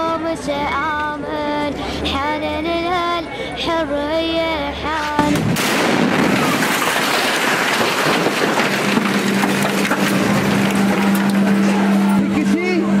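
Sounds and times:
loud dense crackling noise: 5.3s - 12.4s.

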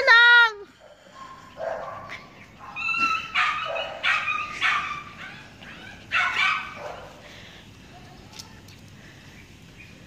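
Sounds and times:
small dog barking: 1.2s - 7.2s.

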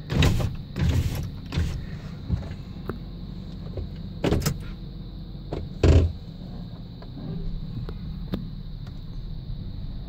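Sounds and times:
engine idling hum: 0.0s - 10.0s
knocks and rustles: 5.5s - 6.2s.

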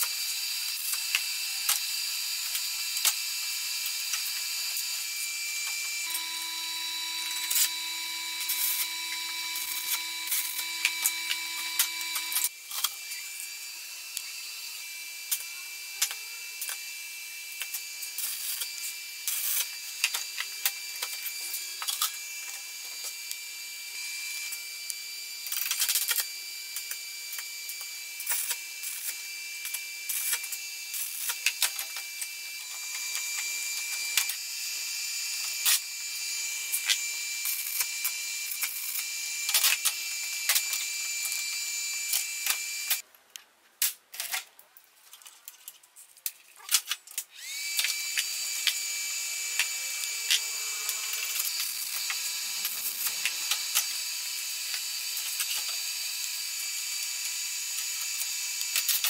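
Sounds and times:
steady high-pitched whine: 0.0s - 43.0s.

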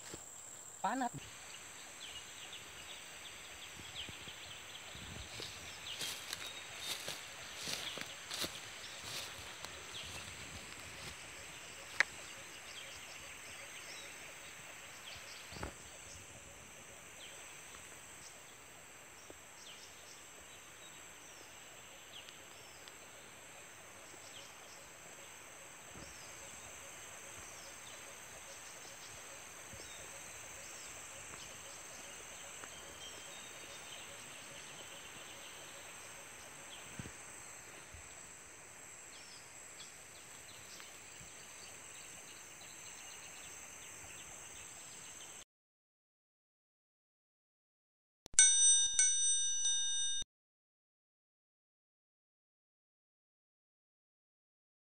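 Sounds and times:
faint chirps: 0.0s - 18.6s
insect chorus drone: 0.0s - 45.4s.

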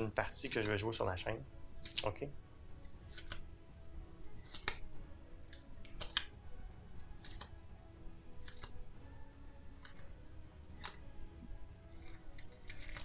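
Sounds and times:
cardboard cards clicking: 1.8s - 2.2s, 2.8s - 3.5s, 4.2s - 4.9s, 5.5s - 6.4s, 7.0s - 7.6s, 8.3s - 8.8s, 9.7s - 10.1s, 10.8s - 11.0s, 12.0s - 13.0s.

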